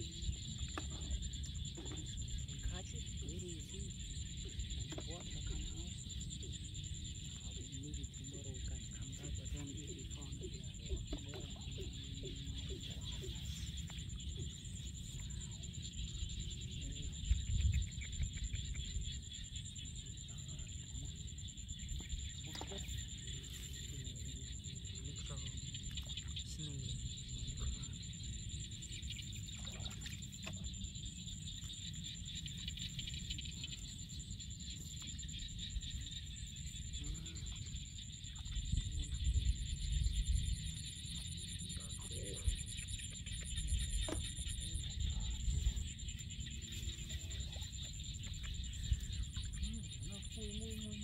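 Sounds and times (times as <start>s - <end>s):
steady low rumble: 0.0s - 51.0s
faint water splashes: 20.2s - 28.4s.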